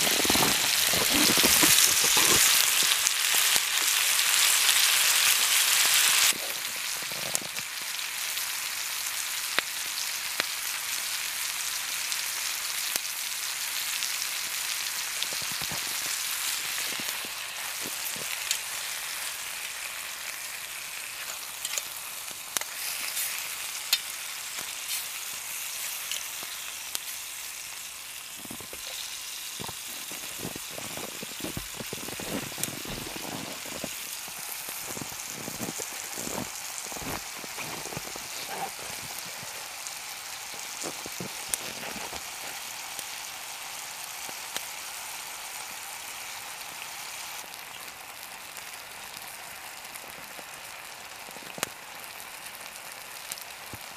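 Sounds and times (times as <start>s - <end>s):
campfire crackling and popping: 0.0s - 53.9s
food sizzling in a frying pan: 0.0s - 53.9s.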